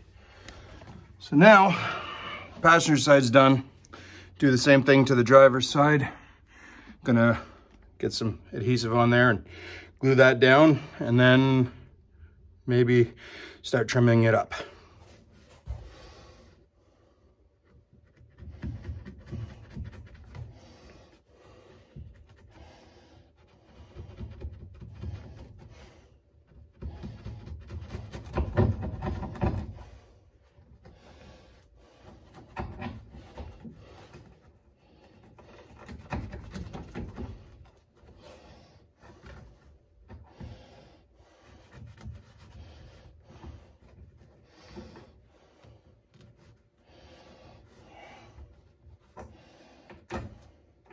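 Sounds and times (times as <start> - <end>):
carpet rustling by hand: 14.7 - 50.9.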